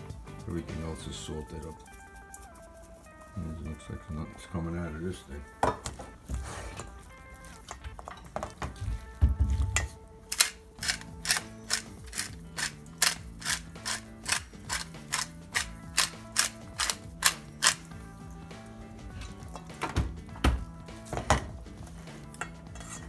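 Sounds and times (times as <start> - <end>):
pepper mill grinding clicks: 10.3 - 17.9.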